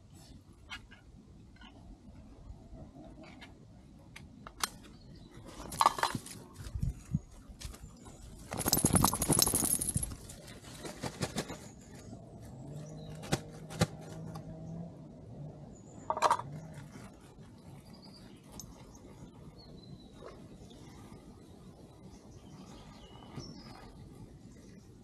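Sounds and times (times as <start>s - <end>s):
dog rustling and clattering: 8.5s - 10.4s.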